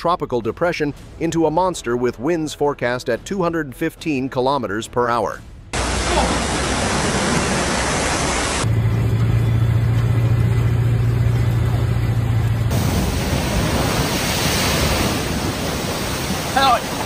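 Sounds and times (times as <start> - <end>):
floodwater and surf rushing: 5.8 - 8.7, 12.7 - 17.0
steady low hum: 5.8 - 16.4.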